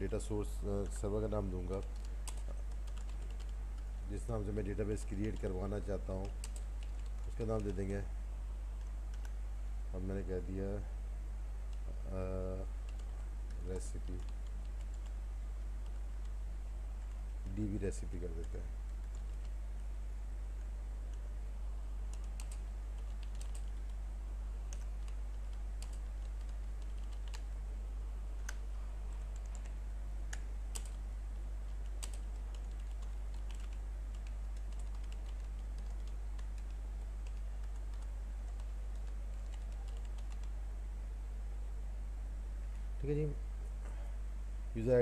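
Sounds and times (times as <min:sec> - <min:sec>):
steady low hum: 0:00.0 - 0:45.0
keyboard typing: 0:00.7 - 0:07.9, 0:11.7 - 0:15.2, 0:17.0 - 0:19.6, 0:22.1 - 0:24.0, 0:24.7 - 0:27.4, 0:28.4 - 0:31.0, 0:31.6 - 0:40.6.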